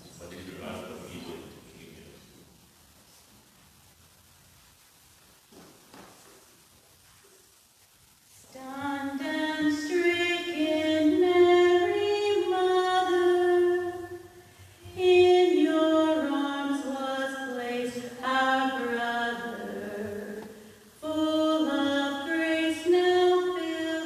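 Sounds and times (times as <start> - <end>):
woman singing a hymn: 8.5 - 24.0.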